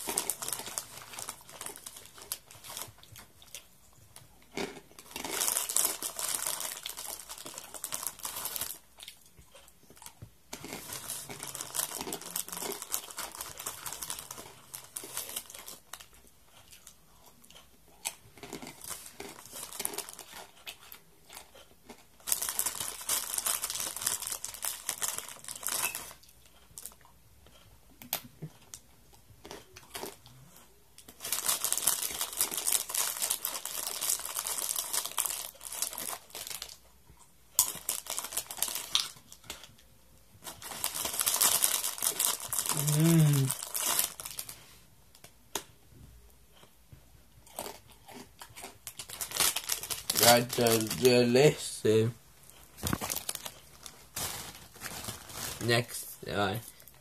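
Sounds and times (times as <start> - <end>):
plastic wrapper crinkling: 0.0 - 3.6, 5.0 - 8.8, 10.5 - 16.1, 22.2 - 27.0, 31.0 - 36.8, 37.6 - 39.7, 40.4 - 45.3, 48.8 - 57.0.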